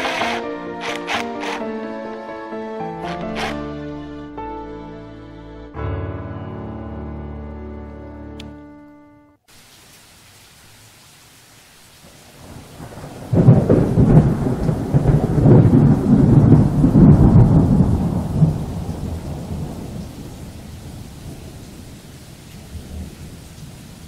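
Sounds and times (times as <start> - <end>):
rain hissing: 0.0 - 1.6, 9.5 - 24.0
thunderclap rumbling: 12.1 - 22.0.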